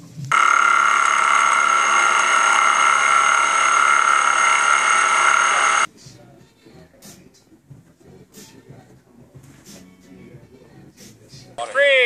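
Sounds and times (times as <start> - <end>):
milling machine high-pitched whine: 0.3 - 5.9.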